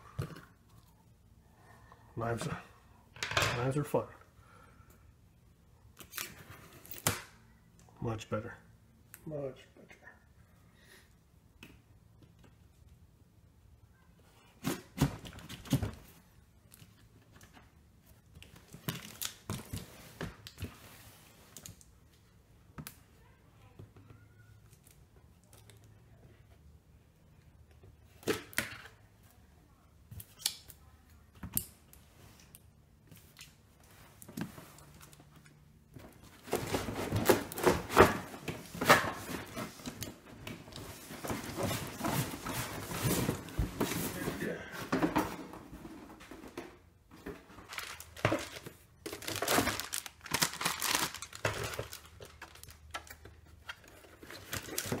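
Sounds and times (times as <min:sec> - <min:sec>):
packaging rustling: 0:47.4 - 0:55.0.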